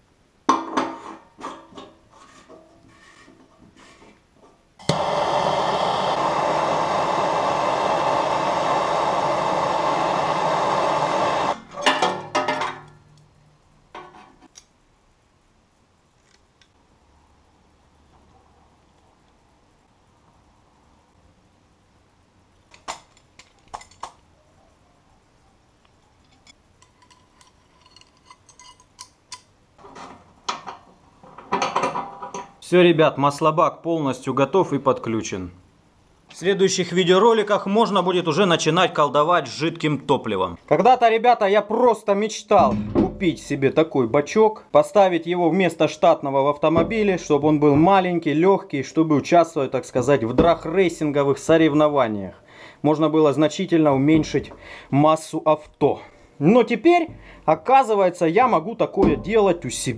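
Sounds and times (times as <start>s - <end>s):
gas torch hissing: 4.8s - 11.7s
handling knocks: 59.0s - 59.6s.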